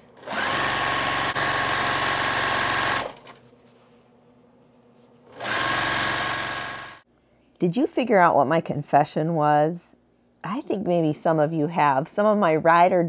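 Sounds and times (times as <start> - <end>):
sewing machine stitching: 0.2 - 3.4, 5.3 - 7.0.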